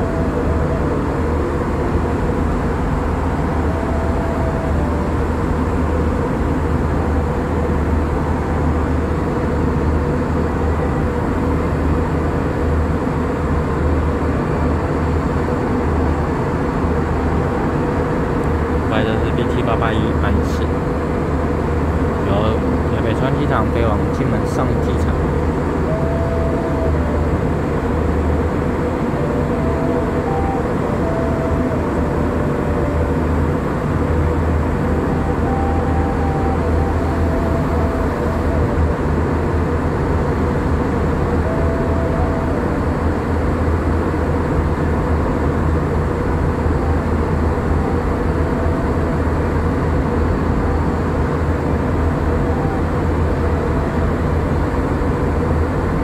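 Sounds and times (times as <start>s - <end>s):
jet engines and airflow rush: 0.0s - 56.0s
low hum: 0.0s - 56.0s.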